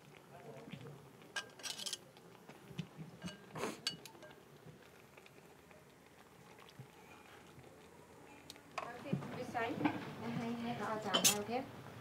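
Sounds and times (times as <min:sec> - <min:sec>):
utensils clinking on ceramic pot: 0:01.4 - 0:02.0, 0:03.2 - 0:04.4, 0:11.1 - 0:11.5.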